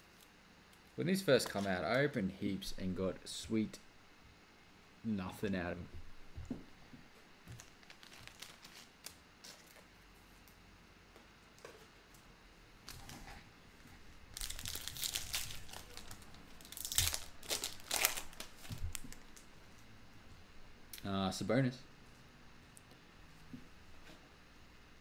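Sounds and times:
foil wrapper crinkling and tearing: 0:07.5 - 0:09.8, 0:14.3 - 0:19.5.

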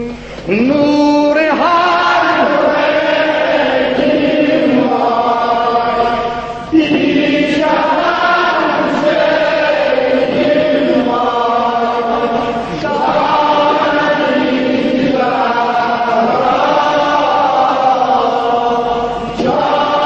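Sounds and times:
man singing mournful elegy: 0:00.0 - 0:02.4.

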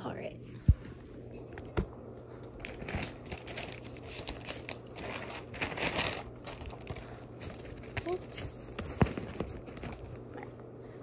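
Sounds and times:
paper rustling and crinkling: 0:02.4 - 0:10.4.

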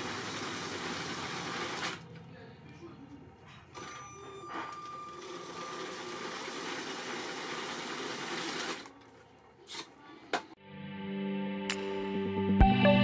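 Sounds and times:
plastic wheels rolling on track: 0:05.2 - 0:09.2.

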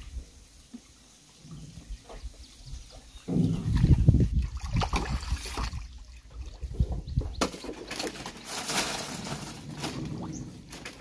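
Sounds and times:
water sloshing and splashing: 0:02.9 - 0:11.0.

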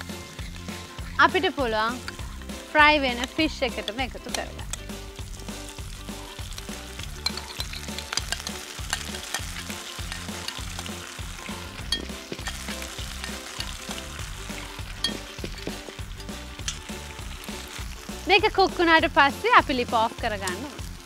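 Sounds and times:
fish sizzling in a pan: 0:00.0 - 0:21.0
sauce being poured: 0:04.4 - 0:18.3.

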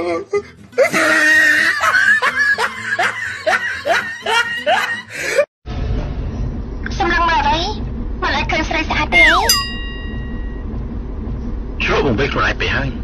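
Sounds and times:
person laughing loudly: 0:00.8 - 0:05.4.

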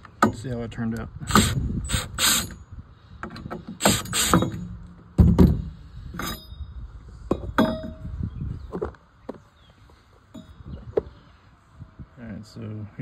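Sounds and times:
cordless drill whirring: 0:03.8 - 0:04.5.

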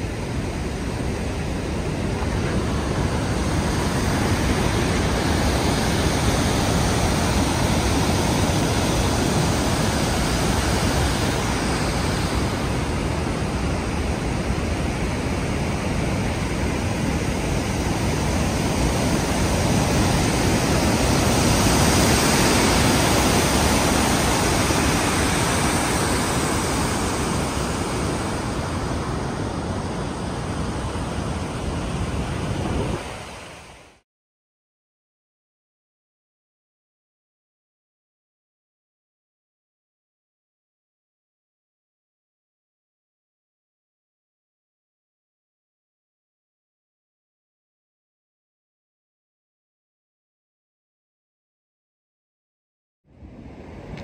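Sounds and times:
wind buffeting the microphone: 0:00.0 - 0:33.6
water rushing over a spillway: 0:00.0 - 0:34.0.

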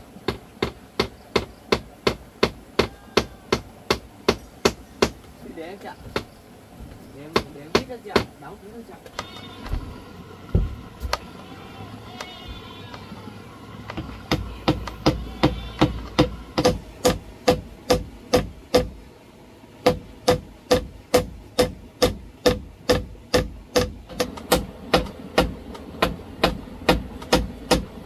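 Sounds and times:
hammer driving nails: 0:13.9 - 0:18.9, 0:19.8 - 0:28.0.

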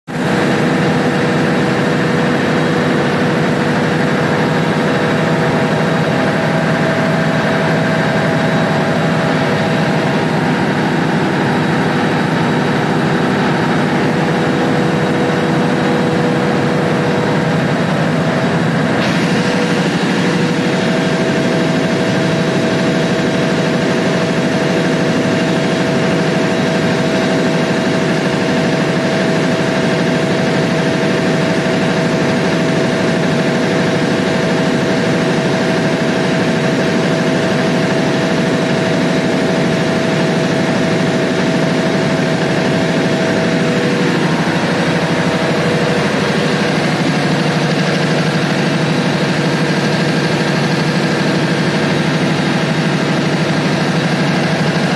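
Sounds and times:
diesel generator engine drone: 0:00.0 - 0:54.9.

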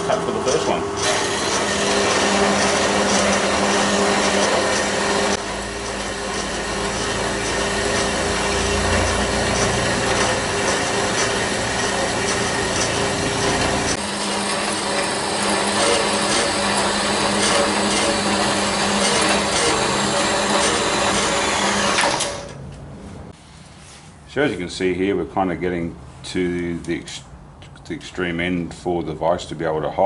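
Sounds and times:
band saw motor hum: 0:00.0 - 0:22.6
saw blade rasping in metal: 0:01.0 - 0:22.4.

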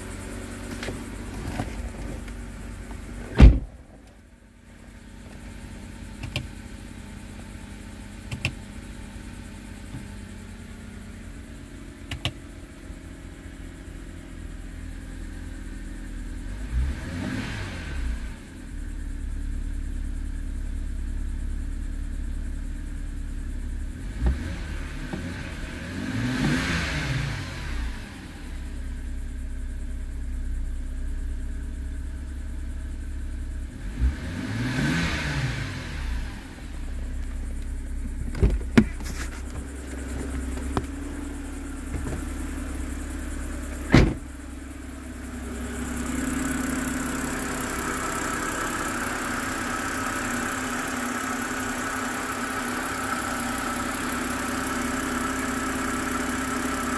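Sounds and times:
car engine revving and idling: 0:00.0 - 0:56.9.

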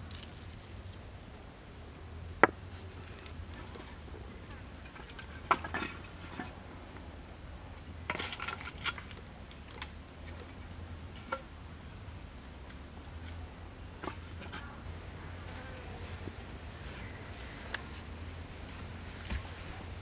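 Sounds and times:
high-pitched insect call: 0:03.2 - 0:14.9.

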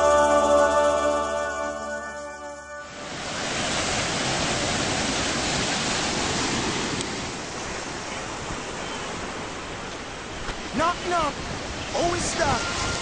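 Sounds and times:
ocean waves breaking: 0:02.6 - 0:13.0.

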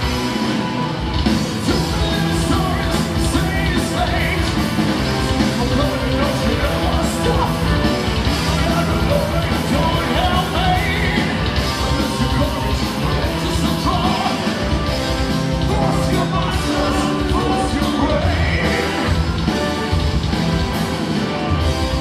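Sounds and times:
metal band playing live: 0:00.0 - 0:22.0
person singing lead vocals: 0:01.6 - 0:14.8, 0:15.5 - 0:19.4.

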